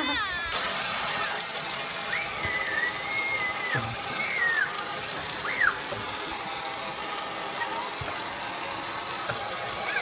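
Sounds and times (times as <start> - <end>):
toddler squealing: 0.0 - 0.6, 2.1 - 4.8, 5.4 - 5.8.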